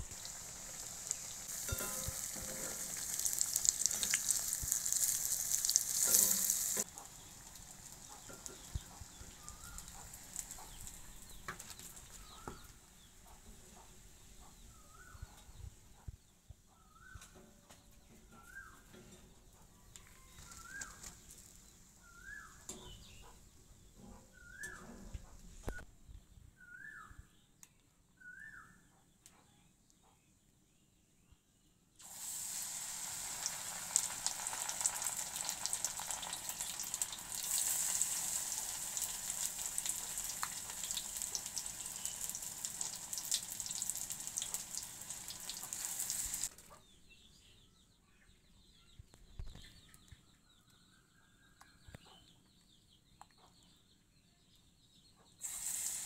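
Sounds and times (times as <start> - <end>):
fritters sizzling in hot oil: 0.0 - 12.7, 20.2 - 23.2, 32.0 - 46.5, 55.4 - 56.0.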